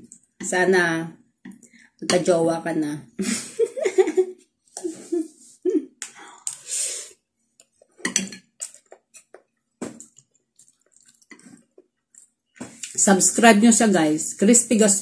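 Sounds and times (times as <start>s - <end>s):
person murmuring: 4.8s - 6.0s
chewing: 7.6s - 13.0s.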